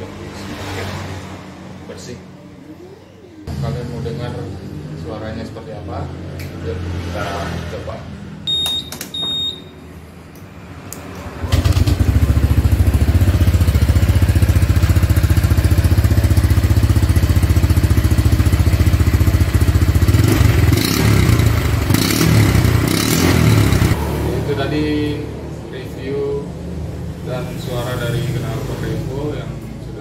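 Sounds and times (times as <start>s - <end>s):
motorcycle engine starting and idling: 11.4s - 24.9s.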